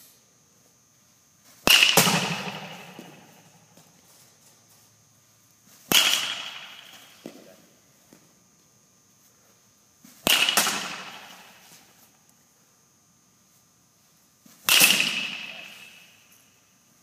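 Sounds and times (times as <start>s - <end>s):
baseball bat hitting ball: 1.6s - 3.6s, 5.8s - 7.5s, 10.1s - 11.8s, 14.6s - 16.3s.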